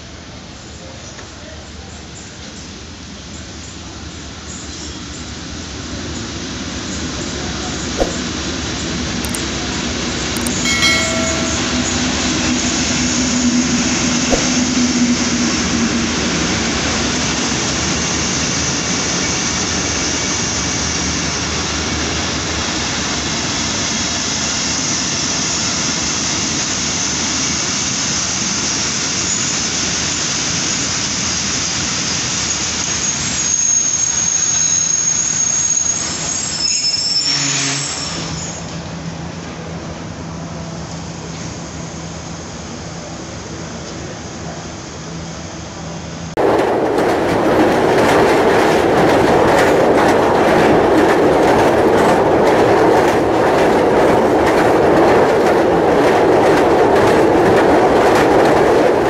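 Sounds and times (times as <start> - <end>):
diesel locomotive engine: 0.0 - 59.0
train wheels rumbling on rails: 1.2 - 59.0
wheel squeal: 32.6 - 38.8.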